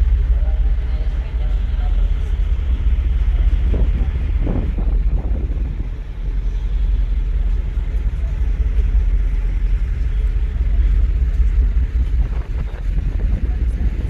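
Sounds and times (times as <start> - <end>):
ferry engines rumbling: 0.0 - 14.0
wind buffeting microphone: 0.0 - 14.0.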